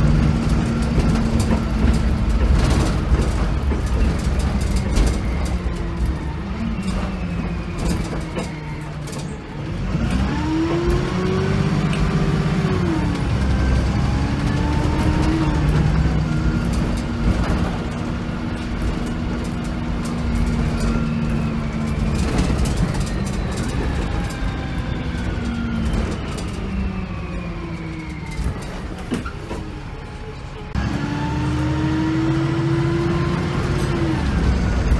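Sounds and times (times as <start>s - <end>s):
bus diesel engine: 0.0s - 34.9s.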